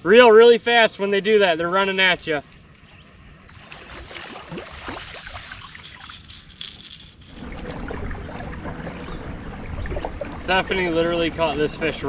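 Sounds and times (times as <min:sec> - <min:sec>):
gear clicking and rattling: 0:05.4 - 0:07.5.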